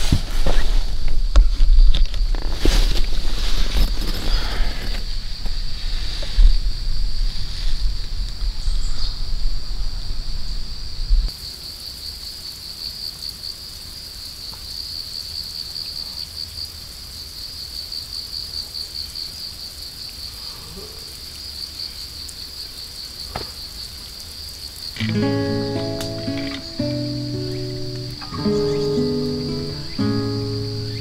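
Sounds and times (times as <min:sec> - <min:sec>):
wind rumble on microphone: 0:00.0 - 0:11.3
insects trilling: 0:01.7 - 0:31.0.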